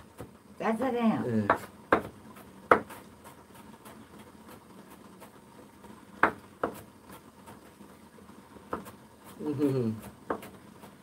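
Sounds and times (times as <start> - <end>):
knife chopping on wooden board: 1.4 - 4.0, 6.2 - 7.6, 8.7 - 11.0.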